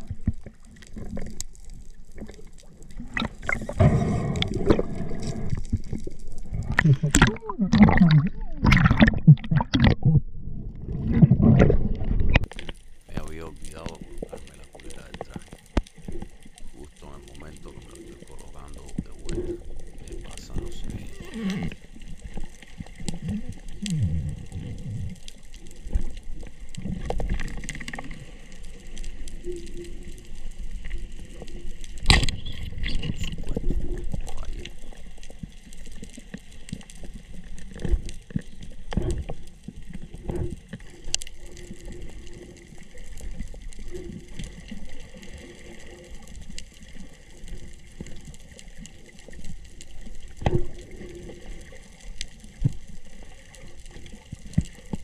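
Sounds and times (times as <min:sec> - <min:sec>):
underwater water rush: 0:00.0 - 0:55.0
underwater clicks and knocks: 0:03.0 - 0:12.8, 0:32.0 - 0:34.8, 0:37.6 - 0:41.2.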